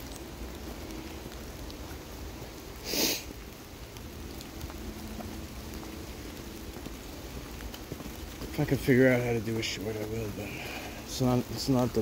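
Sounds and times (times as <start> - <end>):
rain falling: 0.0 - 12.0
person sniffing: 2.8 - 3.3.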